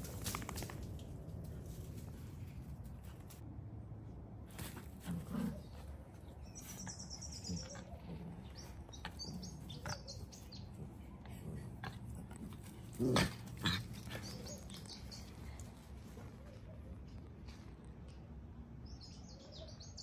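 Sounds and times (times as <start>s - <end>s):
dogs grunting and scuffling: 0.0s - 3.4s, 4.5s - 18.0s
birds chirping: 5.2s - 20.0s.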